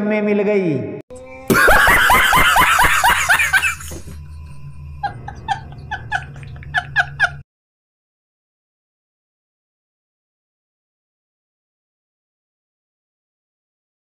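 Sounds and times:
man laughing hard: 0:01.5 - 0:07.4.

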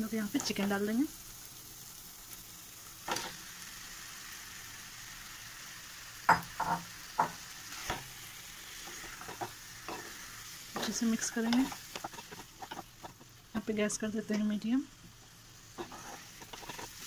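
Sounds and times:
chicken sizzling in a pan: 0:00.0 - 0:17.0
spatula scraping a pan: 0:07.6 - 0:13.4, 0:15.7 - 0:17.0.

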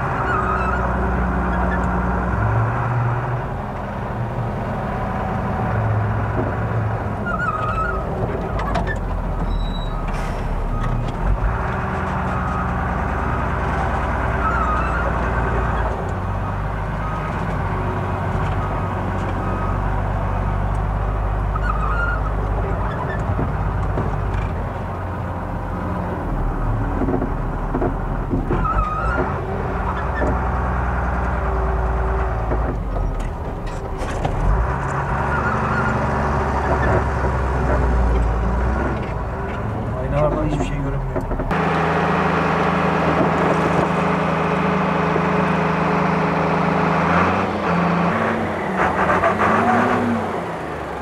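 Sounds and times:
truck engine running: 0:00.0 - 0:51.0
short squeaks: 0:07.2 - 0:13.0, 0:14.2 - 0:16.0, 0:21.4 - 0:24.6, 0:28.4 - 0:30.5, 0:32.1 - 0:39.7
knocks and rattles: 0:22.4 - 0:24.8, 0:26.6 - 0:30.7, 0:36.4 - 0:41.6.

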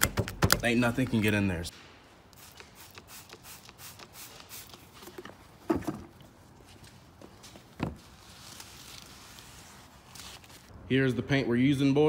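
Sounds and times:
spray bottle spritzing: 0:02.3 - 0:05.3.

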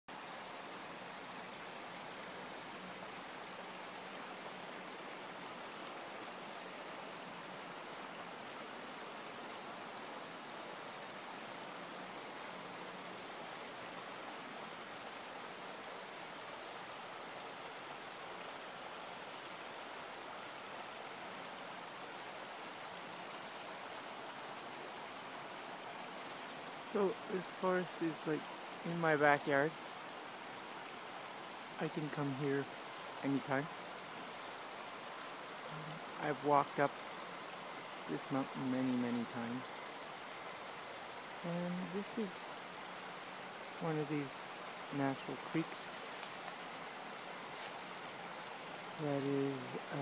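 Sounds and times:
creek running over rocks: 0:00.1 - 0:50.0.

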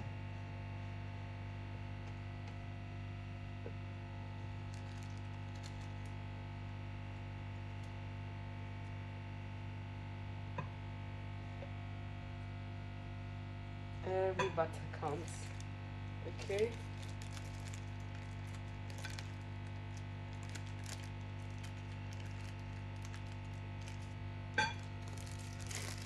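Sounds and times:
low electrical hum: 0:00.0 - 0:26.0
plastic piping bag crinkling: 0:04.4 - 0:06.5, 0:15.1 - 0:26.0.

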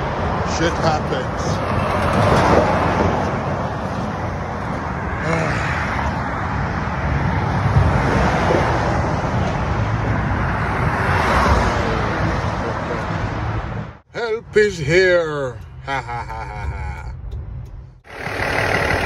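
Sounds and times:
highway traffic roar: 0:00.0 - 0:19.0.

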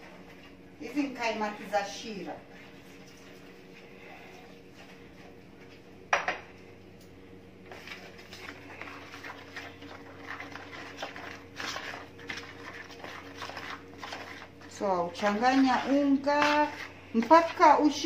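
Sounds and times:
low steady hum: 0:00.0 - 0:18.0
metal spoon stirring in plastic bowl: 0:07.7 - 0:18.0.

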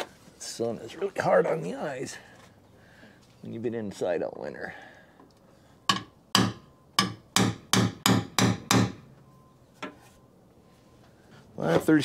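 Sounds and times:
hammer striking metal punch: 0:05.9 - 0:09.1.

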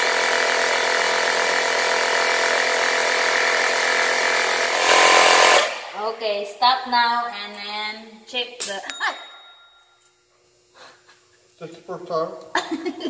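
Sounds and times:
air compressor running: 0:00.0 - 0:06.6.

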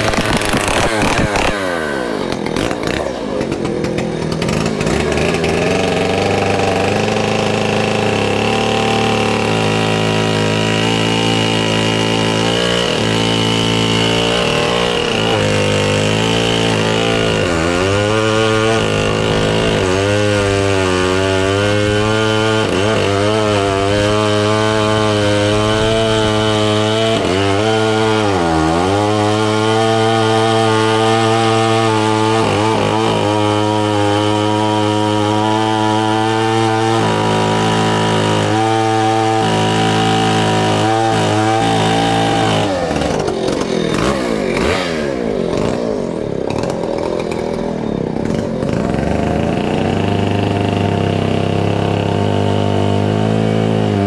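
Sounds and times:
chainsaw cutting logs: 0:00.0 - 0:54.0.

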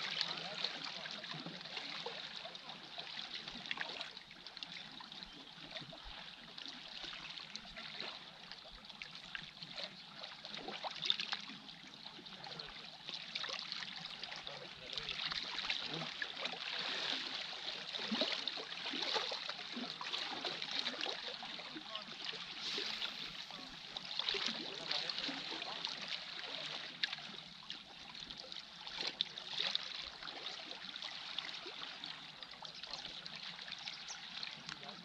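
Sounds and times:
small waves lapping on rocks: 0:09.2 - 0:35.0.

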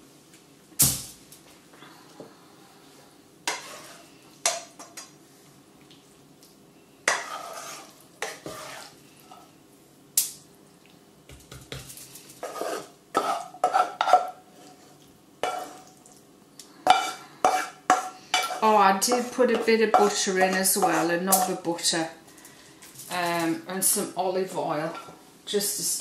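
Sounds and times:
spoon scraping a frying pan: 0:03.5 - 0:05.1, 0:07.0 - 0:09.6, 0:12.4 - 0:14.8, 0:15.4 - 0:15.9, 0:16.8 - 0:21.6.

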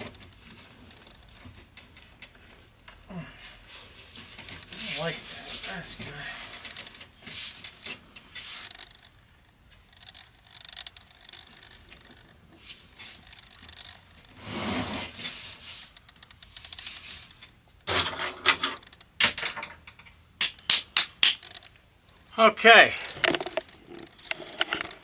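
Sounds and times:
rustles and scrapes: 0:00.0 - 0:18.9, 0:21.4 - 0:25.0
clicks and knocks: 0:23.0 - 0:25.0.

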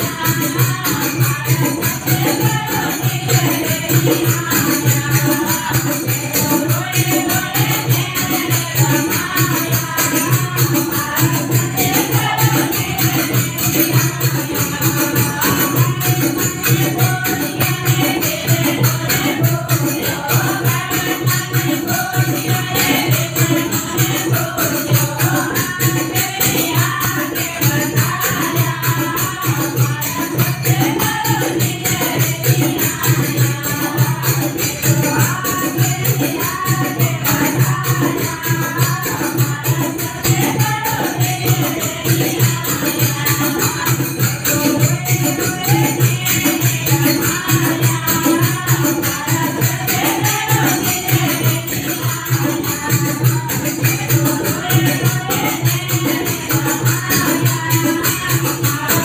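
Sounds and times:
hand drum beat: 0:00.0 - 0:59.0
jingling percussion: 0:00.0 - 0:59.0
women singing devotional song: 0:00.0 - 0:59.0.

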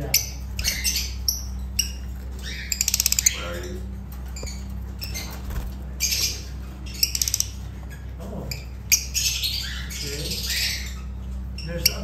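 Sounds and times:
bird chattering notes: 0:00.0 - 0:12.0
lovebirds squawking: 0:00.0 - 0:12.0
steady low hum: 0:00.0 - 0:12.0.

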